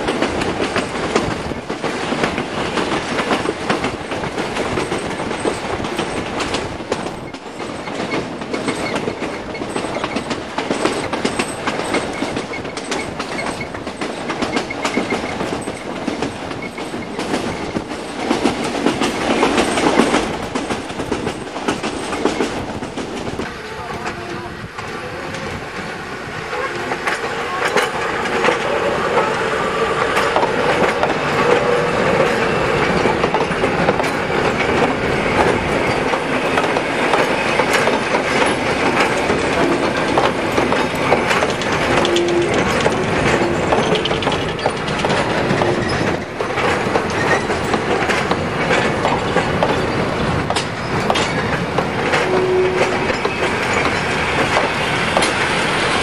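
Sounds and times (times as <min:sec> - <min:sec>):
train wheels clattering over rail joints: 0:00.0 - 0:56.0
wheel squeals: 0:45.5 - 0:46.3.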